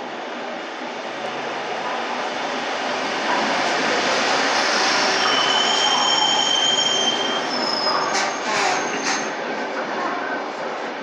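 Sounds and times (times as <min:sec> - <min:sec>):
train wheels rushing on rail: 0:00.0 - 0:11.0
high squealing of wheels: 0:04.4 - 0:09.4.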